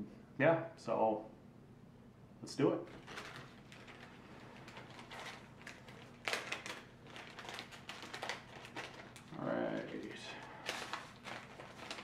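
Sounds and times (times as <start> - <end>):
packaging crinkling and rustling: 2.9 - 12.0.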